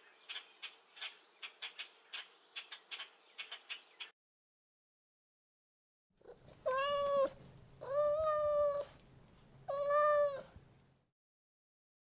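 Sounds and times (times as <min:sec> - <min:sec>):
cat meowing: 0:06.2 - 0:08.9, 0:09.7 - 0:10.6.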